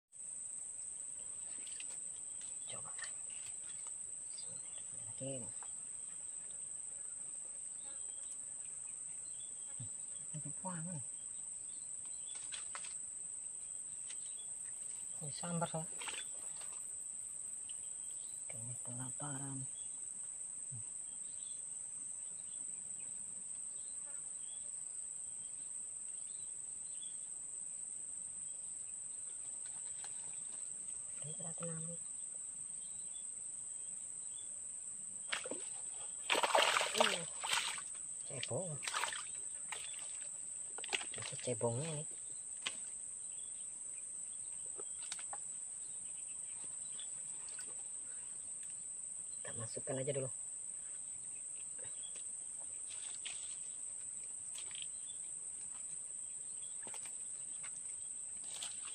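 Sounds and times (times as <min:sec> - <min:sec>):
insects buzzing drone: 0:00.2 - 0:58.9.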